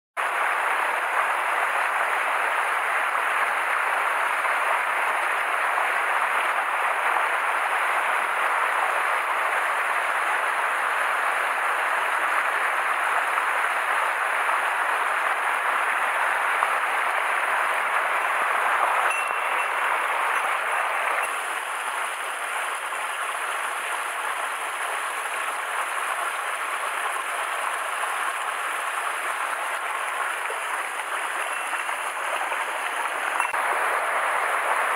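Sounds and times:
stream running over rocks: 0.2s - 34.9s.

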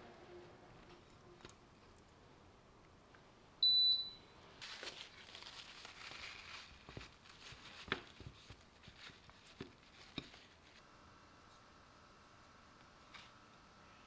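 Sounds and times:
paper towel rustling: 4.6s - 10.8s.

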